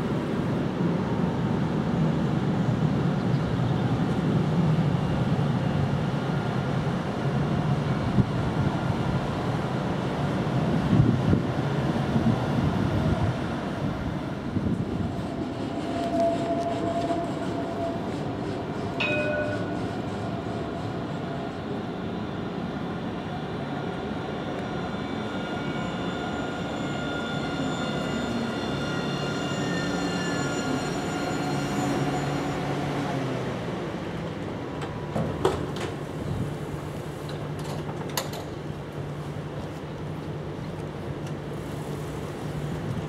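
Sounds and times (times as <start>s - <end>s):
electric tram braking: 14.9s - 22.2s, 24.3s - 33.9s.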